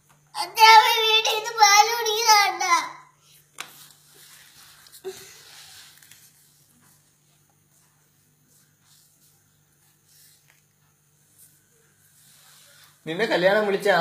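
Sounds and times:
boy sobbing breaths: 5.0 - 5.8.

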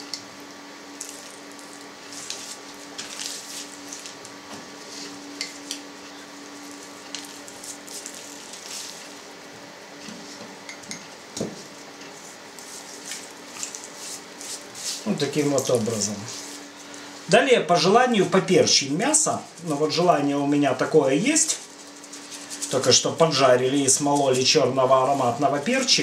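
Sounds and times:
faint steady hum: 0.0 - 26.0
salt grains pattering: 1.0 - 4.2, 6.6 - 9.2, 12.6 - 17.0.

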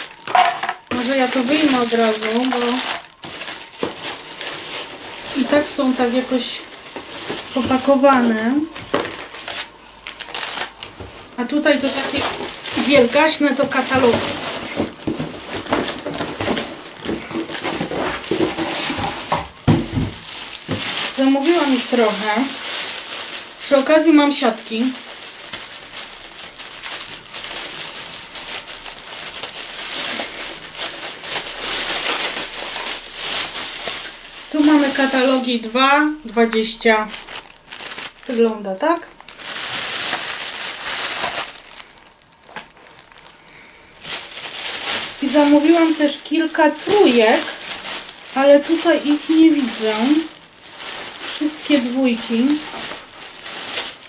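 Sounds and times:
plastic bag rustling: 0.0 - 54.0
plastic packaging crinkling: 0.0 - 54.0
cardboard box rustling: 0.9 - 23.3.

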